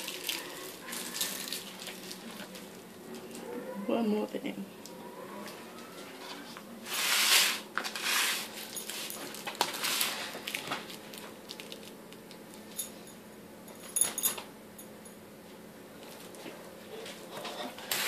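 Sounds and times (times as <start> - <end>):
foil clicking and crinkling: 0.0 - 3.4, 7.4 - 12.6
foil tray scraping across countertop: 6.8 - 10.5, 17.4 - 18.0.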